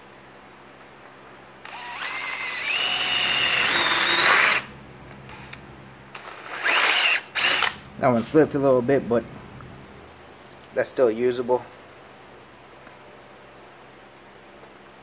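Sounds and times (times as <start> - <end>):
drill motor whining: 1.6 - 4.7, 6.2 - 7.8.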